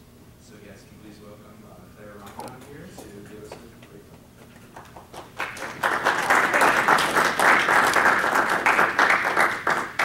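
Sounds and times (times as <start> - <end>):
small group clapping: 4.6 - 10.0.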